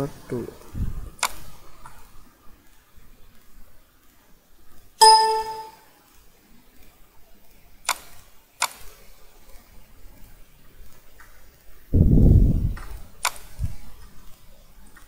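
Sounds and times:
computer alert ding: 0:05.0 - 0:05.8.

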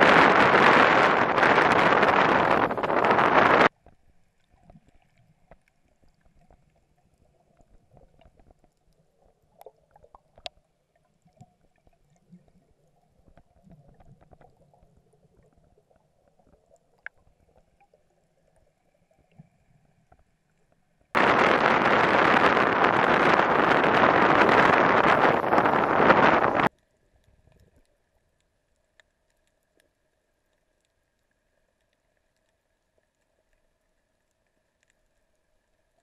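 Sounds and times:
wind buffeting the microphone: 0:00.0 - 0:03.7, 0:21.2 - 0:26.7
faint muffled underwater sound: 0:00.0 - 0:36.0.

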